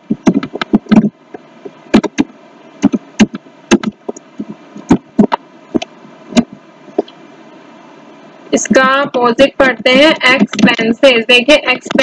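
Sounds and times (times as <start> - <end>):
computer keys and mouse clicks: 0.2 - 1.1, 2.0 - 4.2.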